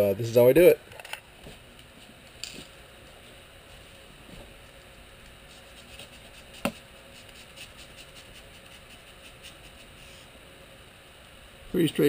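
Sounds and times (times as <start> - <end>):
knife cutting foam board: 5.6 - 9.9.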